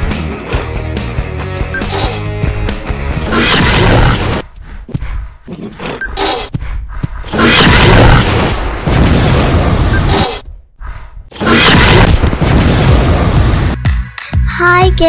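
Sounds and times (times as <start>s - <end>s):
deep boom: 7.7s - 9.9s, 11.8s - 13.8s.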